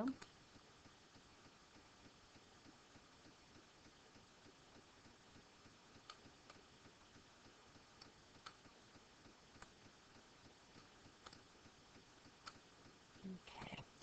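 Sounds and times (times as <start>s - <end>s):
computer mouse clicks: 0.1s - 0.4s, 10.7s - 11.5s, 12.4s - 12.6s.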